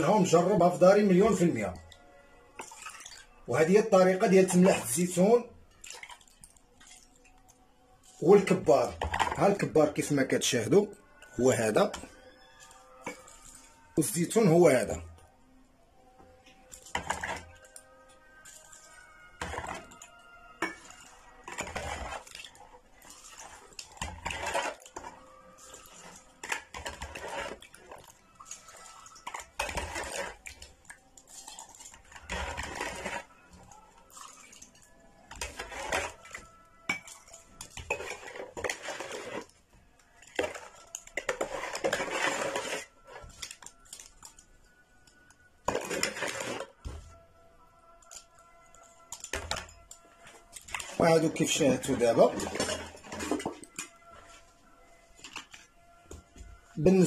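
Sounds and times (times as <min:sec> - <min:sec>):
brine pouring into glass jars: 0:00.0 - 0:15.2, 0:16.4 - 0:47.0, 0:47.7 - 0:55.7
plastic cup scraping in basin: 0:08.0 - 0:10.8, 0:16.8 - 0:17.8, 0:19.4 - 0:20.0, 0:20.6 - 0:30.8, 0:31.7 - 0:33.6, 0:35.3 - 0:36.5, 0:37.5 - 0:39.6, 0:40.2 - 0:43.7, 0:45.6 - 0:47.0, 0:49.3 - 0:54.5.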